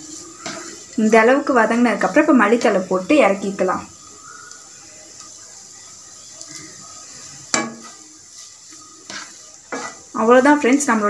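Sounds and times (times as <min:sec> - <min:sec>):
spatula scraping frying pan: 0:00.0 - 0:03.4, 0:04.0 - 0:11.0
faint sizzling: 0:00.0 - 0:11.0
spatula knocking pan: 0:07.5 - 0:08.1, 0:09.0 - 0:10.7.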